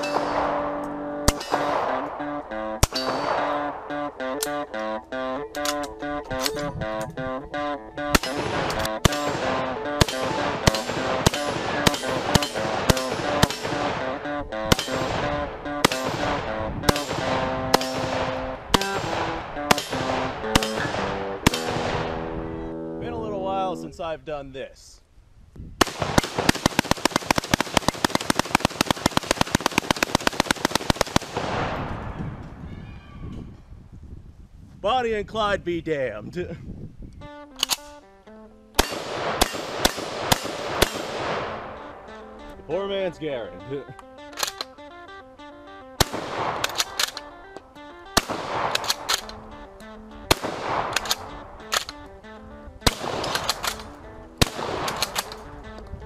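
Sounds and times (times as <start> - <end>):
rifle firing rapid shots: 0.0 - 4.6, 8.1 - 22.3, 25.8 - 32.0, 38.8 - 42.0, 46.0 - 47.3, 48.1 - 49.6, 50.3 - 52.1, 52.8 - 55.6
background music: 0.0 - 24.0, 37.2 - 56.0
gun bolt clicking: 4.4 - 4.6, 5.5 - 7.1, 8.2 - 9.2, 37.5 - 38.0, 44.0 - 44.9, 46.6 - 47.8, 48.6 - 49.9, 50.8 - 52.1, 53.2 - 55.9.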